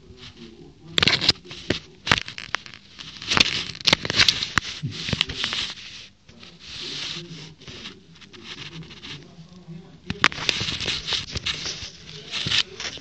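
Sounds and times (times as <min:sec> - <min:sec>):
soft rustling hiss: 0:00.0 - 0:13.0
cat pawing at a phone: 0:00.9 - 0:06.0.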